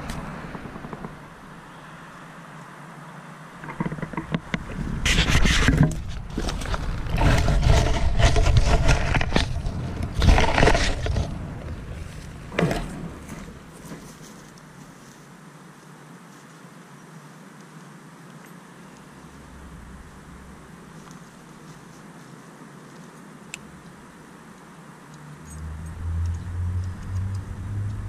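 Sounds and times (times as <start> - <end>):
camera rustling against dry reeds: 3.6 - 16.8, 17.6 - 24.7.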